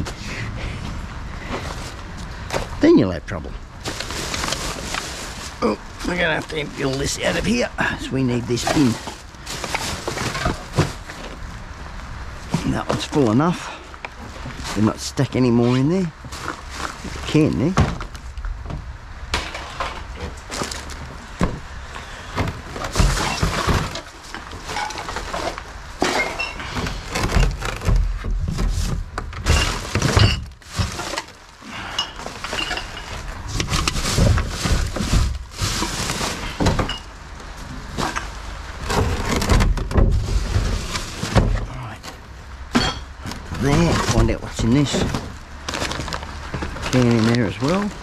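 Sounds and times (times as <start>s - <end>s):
bottles and cans clattering: 22.4s - 37.2s, 42.7s - 44.3s.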